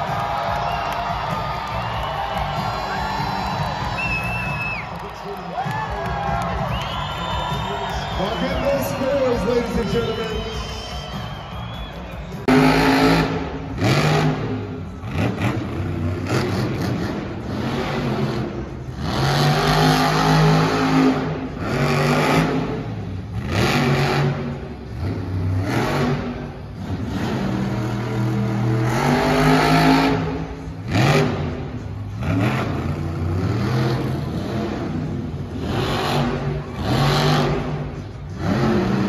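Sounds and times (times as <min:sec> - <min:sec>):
truck engine revving: 0:00.0 - 0:39.0.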